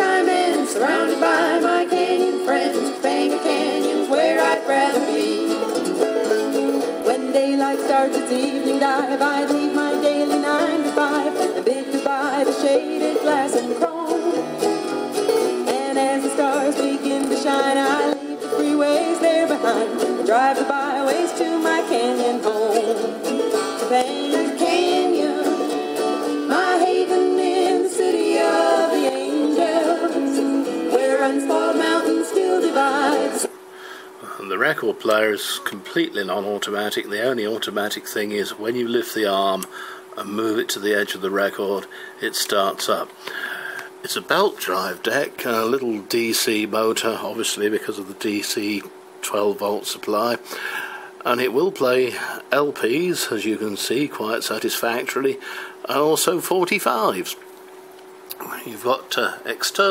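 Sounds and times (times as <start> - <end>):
music from a record player: 0.0 - 33.7.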